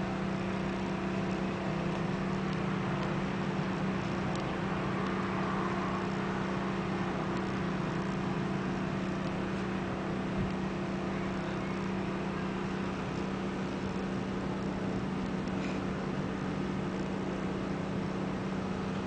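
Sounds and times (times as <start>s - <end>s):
low mechanical hum: 0.0s - 19.0s.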